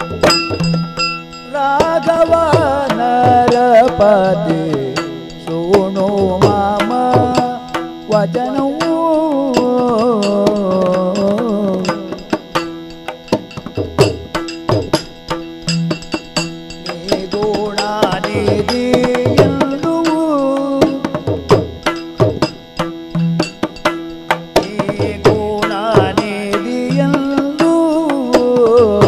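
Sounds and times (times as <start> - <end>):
steady drone: 0.0 - 29.0
man singing: 1.4 - 12.7, 16.8 - 21.9, 24.5 - 29.0.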